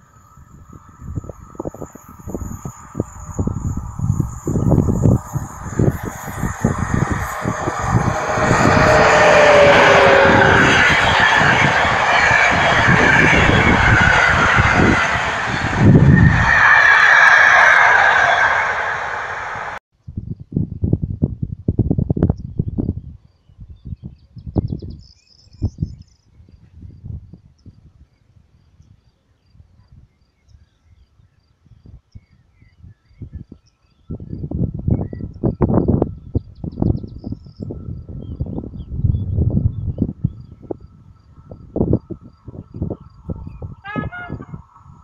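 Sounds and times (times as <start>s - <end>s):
insect chirping: 0.0s - 9.8s
wheels rushing on rail: 0.0s - 19.8s, 34.3s - 45.0s
wind rumble on microphone: 0.0s - 45.0s.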